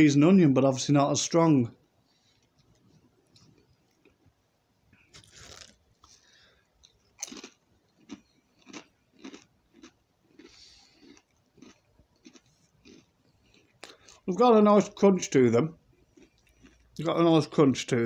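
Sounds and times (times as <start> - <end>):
person chewing crisps: 2.1 - 4.2, 5.0 - 14.3, 15.9 - 17.1.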